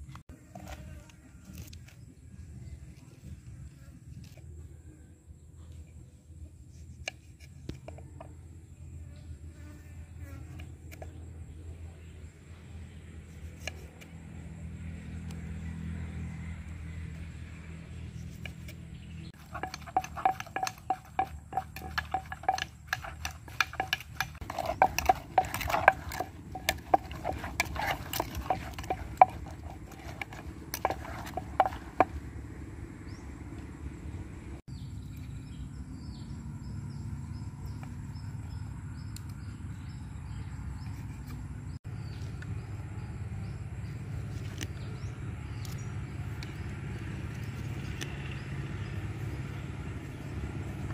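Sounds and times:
pestle knocking in clay mortar: 0:19.4 - 0:32.2.

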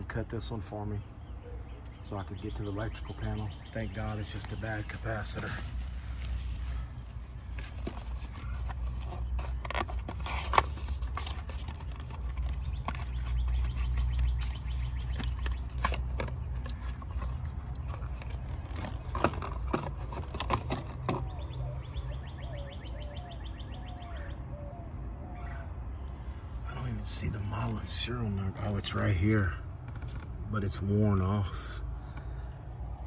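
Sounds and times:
birds chirping: 0:00.0 - 0:33.0.

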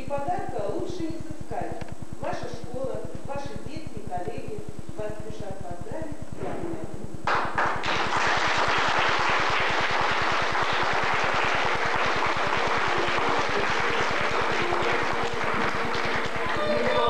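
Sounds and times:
crowd applauding: 0:07.3 - 0:17.0.

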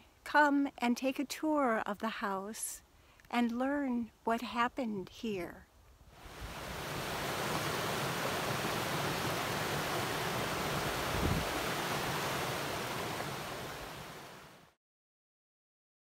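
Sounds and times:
water running over rocks: 0:06.2 - 0:14.5.

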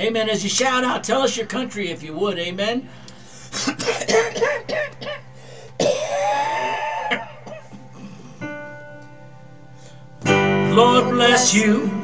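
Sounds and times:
sustained instrument chord: 0:03.0 - 0:12.0
person coughing: 0:03.5 - 0:08.3.

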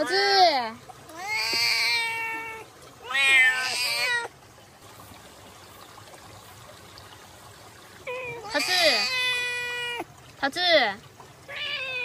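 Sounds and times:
cat meowing: 0:01.1 - 0:04.3, 0:08.1 - 0:10.0, 0:11.5 - 0:12.0.

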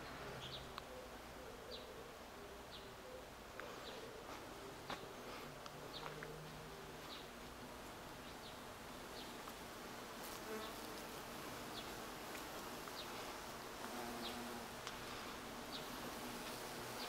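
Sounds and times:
bees buzzing: 0:06.4 - 0:17.0.

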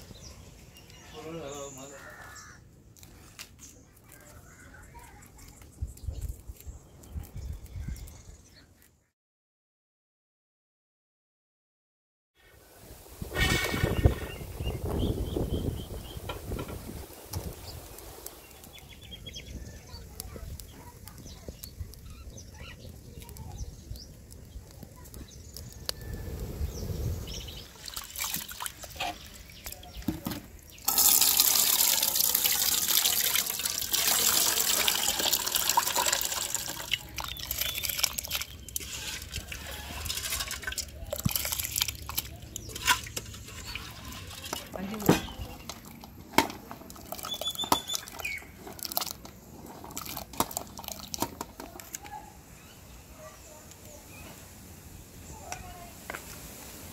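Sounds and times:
water pouring and splashing: 0:26.5 - 0:52.0.

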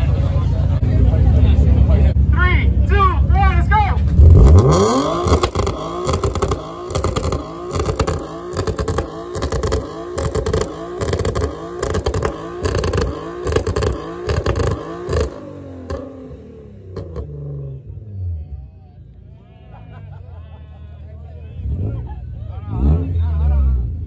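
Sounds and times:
car engine revving: 0:04.0 - 0:18.6, 0:21.5 - 0:24.0
exhaust pops and crackles: 0:04.1 - 0:16.1.

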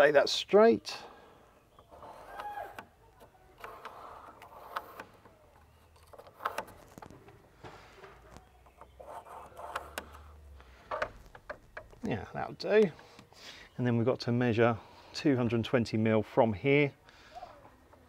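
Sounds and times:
pencil scratching on wood: 0:08.8 - 0:10.2.

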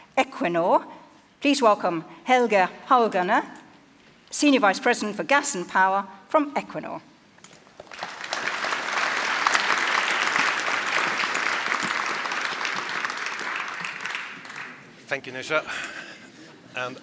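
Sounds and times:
audience applauding: 0:07.7 - 0:15.0.

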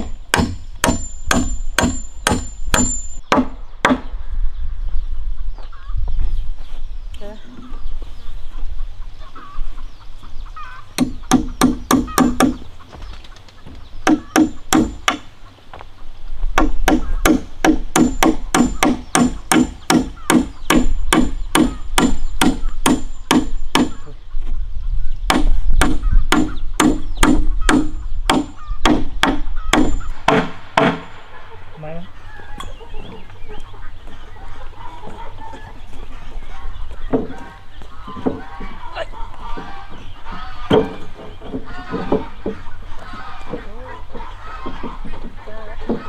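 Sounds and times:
hammer striking wooden post: 0:00.0 - 0:04.1, 0:11.0 - 0:12.6, 0:14.0 - 0:15.3, 0:16.6 - 0:24.0, 0:25.3 - 0:31.1.

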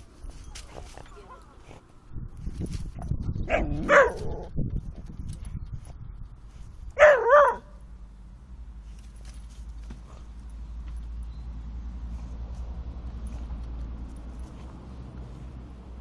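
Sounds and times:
dogs yelping whines: 0:07.0 - 0:07.7.

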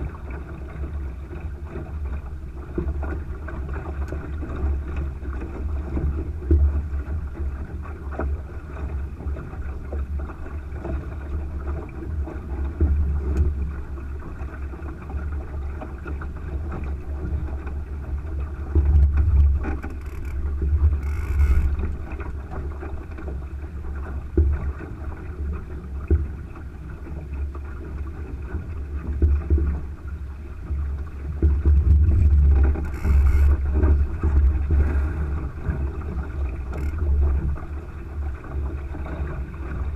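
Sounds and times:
water rushing along hull: 0:00.0 - 0:39.9
wind buffeting microphone: 0:30.8 - 0:38.0.

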